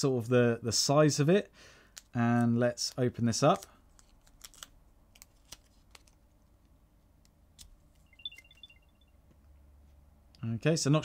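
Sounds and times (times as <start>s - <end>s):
high-pitched beeps: 8.1s - 9.2s.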